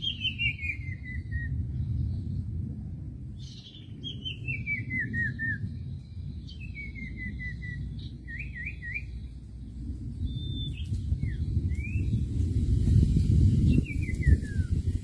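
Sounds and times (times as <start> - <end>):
bird whistling: 0.0 - 1.6, 3.5 - 5.7, 6.4 - 9.2, 10.3 - 12.2, 13.7 - 14.8
steady low rumble: 0.0 - 15.0.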